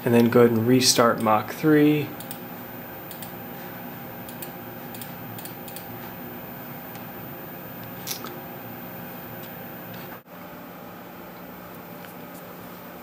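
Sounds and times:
low hum: 0:01.5 - 0:10.2
computer mouse clicks: 0:02.2 - 0:02.4, 0:03.1 - 0:03.4, 0:04.2 - 0:05.9.

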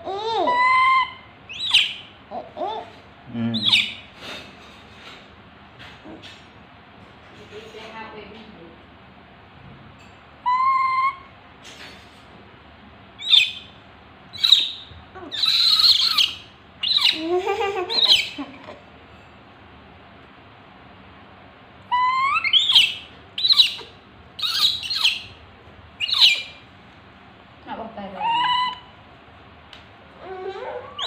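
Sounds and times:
baby monkey crying: 0:00.0 - 0:03.0, 0:10.5 - 0:11.3, 0:14.4 - 0:18.8, 0:21.9 - 0:25.3, 0:26.0 - 0:26.5, 0:28.2 - 0:28.9.

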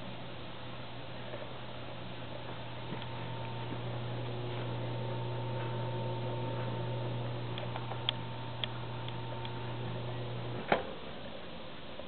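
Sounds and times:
electric motor hum: 0:02.3 - 0:10.7.

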